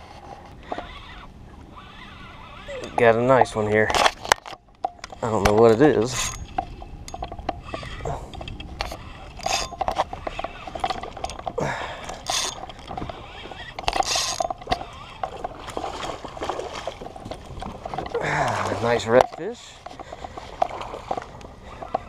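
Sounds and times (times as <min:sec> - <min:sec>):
fishing reel gears clicking: 0:00.6 - 0:03.4, 0:06.0 - 0:15.8.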